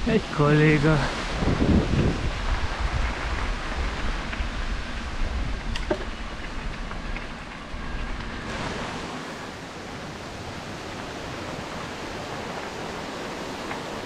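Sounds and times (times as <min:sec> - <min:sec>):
mountain stream and waterfall rushing: 0:00.0 - 0:04.4, 0:08.4 - 0:14.0.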